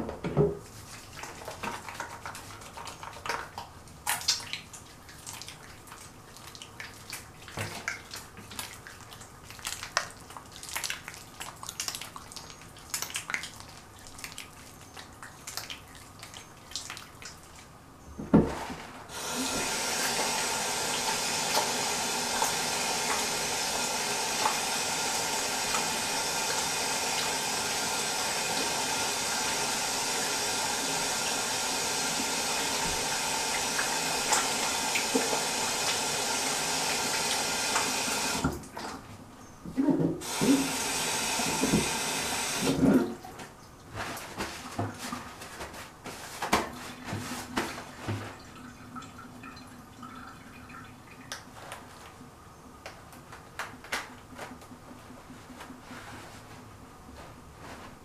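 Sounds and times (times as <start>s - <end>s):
tap running into sink: 18.2s - 39.0s, 39.8s - 43.2s
clicks taps and rustles of handling: 52.8s - 55.8s.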